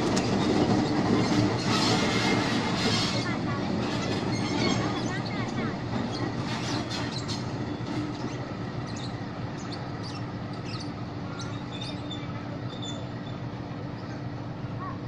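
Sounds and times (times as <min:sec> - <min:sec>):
locomotive engine humming: 0:00.0 - 0:15.0
birds chirping: 0:07.0 - 0:14.3.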